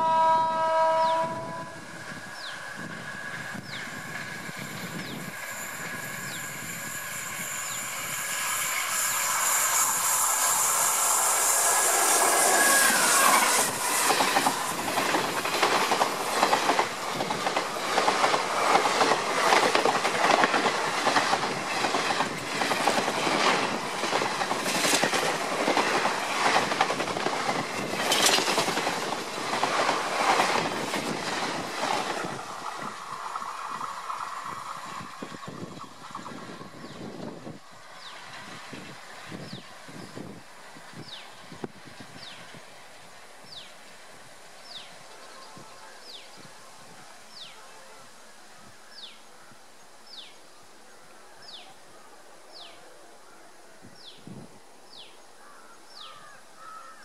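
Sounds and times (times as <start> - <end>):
electric locomotive passing: 0.0 - 56.8
wheels clattering over rail joints: 12.9 - 34.5.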